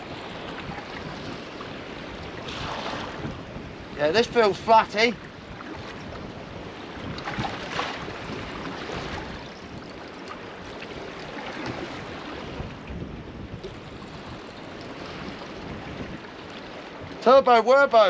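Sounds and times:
water slapping against hull: 0.0 - 4.0, 5.2 - 17.2
wind buffeting microphone: 0.0 - 18.0.

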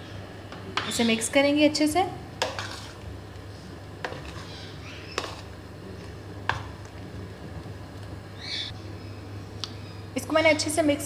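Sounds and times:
spoon stirring thick mixture: 2.3 - 8.1.

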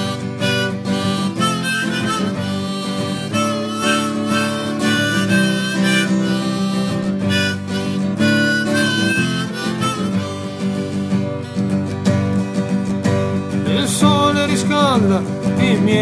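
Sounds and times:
guitar accompaniment: 0.0 - 16.0
harmonica melody: 0.0 - 16.0.

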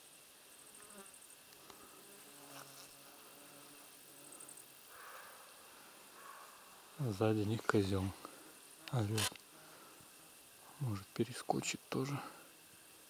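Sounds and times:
insects chirring: 0.0 - 13.0
distant deer barking: 4.9 - 6.9.

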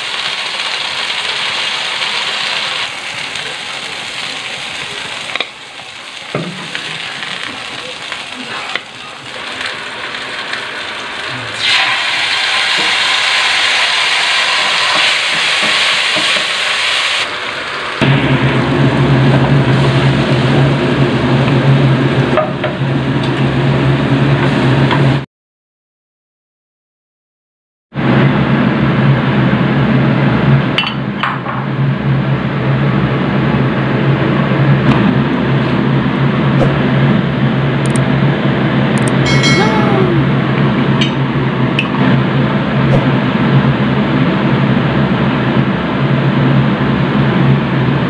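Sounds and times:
fan or motor hum: 0.0 - 25.2, 28.0 - 48.0
oil sizzling in a frying pan: 0.0 - 25.2
metal bowls clinking: 39.2 - 39.7.

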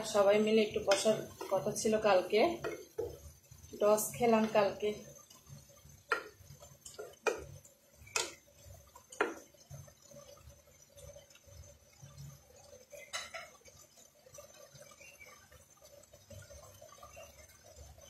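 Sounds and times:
spatula knocking against pan: 2.6 - 3.2, 6.1 - 7.5.

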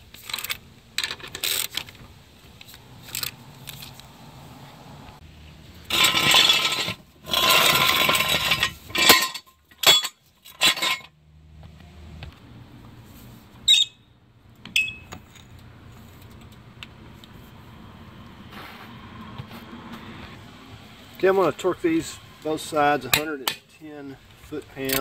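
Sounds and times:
metal scraping and clattering: 5.8 - 11.2
metal clanks: 5.9 - 11.2, 23.1 - 23.8.

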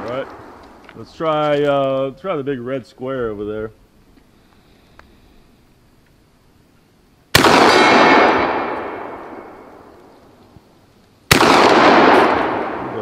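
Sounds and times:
shotgun shots with echo: 7.3 - 9.9, 11.3 - 13.0.

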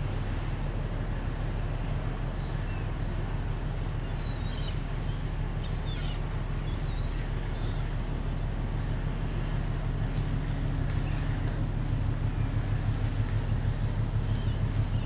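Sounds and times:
ship engine rumble: 0.0 - 15.0
faint bird chirps: 4.0 - 7.9, 13.5 - 15.0.

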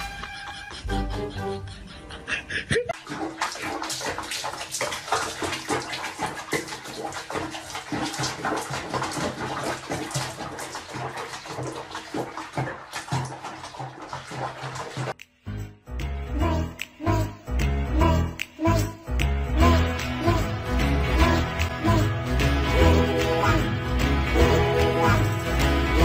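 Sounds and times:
water splashing in a bathtub: 2.9 - 15.2, 19.6 - 26.0.

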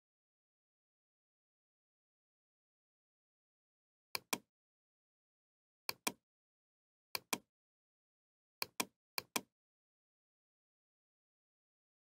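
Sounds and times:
computer mouse clicking: 5.9 - 6.2, 8.6 - 9.5.

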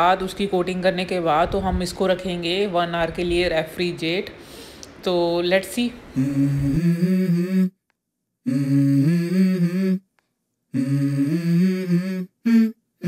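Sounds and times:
hummed vocal melody: 6.0 - 7.8, 8.4 - 13.0.

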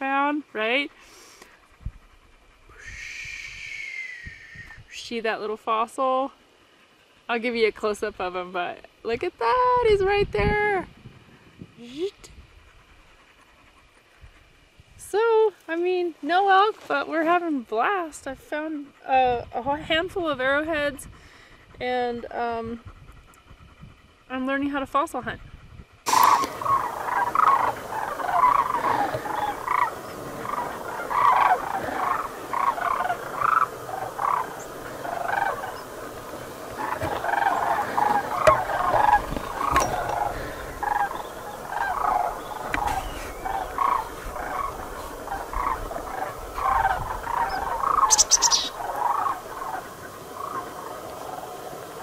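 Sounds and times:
cranes calling in flight: 18.8 - 24.8, 26.1 - 52.0.

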